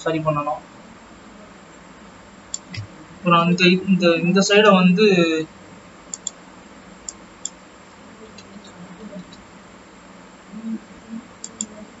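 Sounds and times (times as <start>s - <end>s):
background hiss: 0.0s - 12.0s
mouse clicks: 6.1s - 6.4s, 11.4s - 11.7s.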